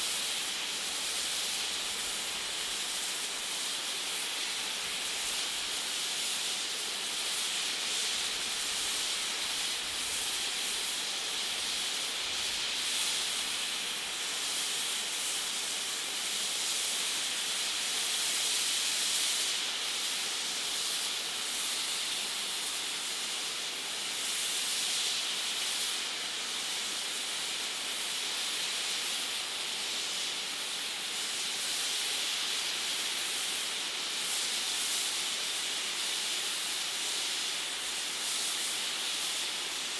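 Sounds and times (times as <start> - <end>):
steam hissing from safety valves: 0.0 - 39.9.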